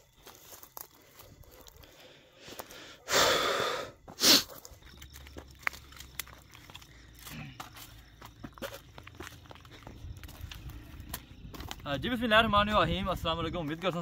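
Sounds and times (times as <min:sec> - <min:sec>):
footsteps on twigs and dry ground: 0:00.0 - 0:03.0, 0:04.0 - 0:14.0
breathy huffs: 0:01.8 - 0:04.6.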